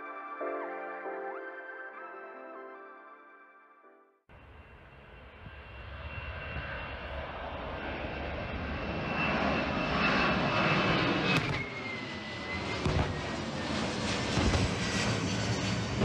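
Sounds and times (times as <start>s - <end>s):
jet engines roaring: 4.4s - 16.0s.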